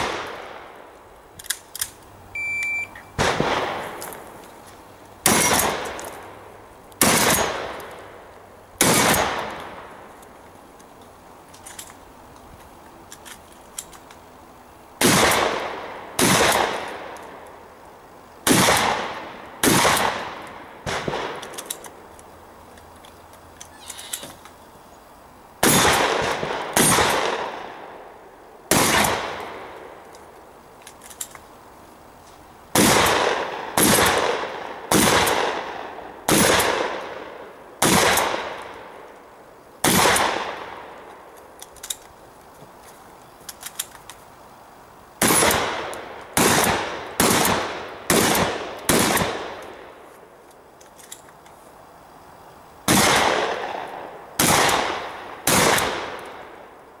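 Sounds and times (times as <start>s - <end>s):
shotgun shots echoing: 0.0s - 0.7s, 3.2s - 4.1s, 5.2s - 6.3s, 7.0s - 7.9s, 8.8s - 9.9s, 15.0s - 17.2s, 18.4s - 21.6s, 25.6s - 27.9s, 28.7s - 29.7s, 32.7s - 38.9s, 39.8s - 41.0s, 45.2s - 49.8s, 52.9s - 56.6s.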